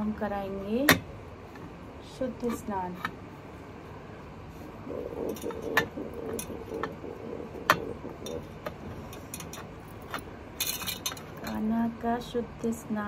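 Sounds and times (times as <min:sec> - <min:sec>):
faint low murmur: 0:03.5 - 0:13.0
small metal vessels clinking: 0:09.1 - 0:11.6.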